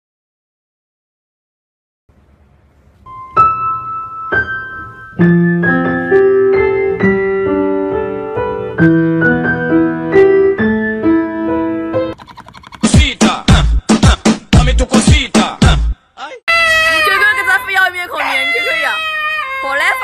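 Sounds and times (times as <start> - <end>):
gentle piano melody: 3.0 - 12.2.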